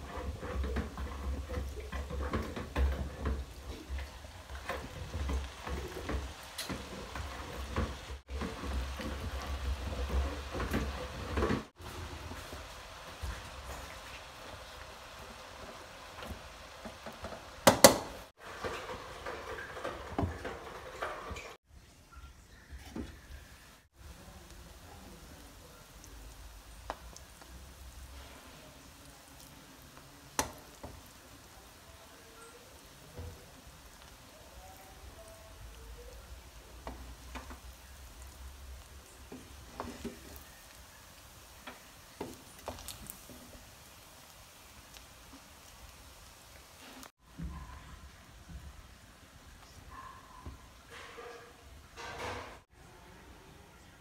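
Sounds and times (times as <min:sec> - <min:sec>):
spatula scraping a pan: 0:00.0 - 0:11.8
faint sizzle: 0:00.0 - 0:54.0.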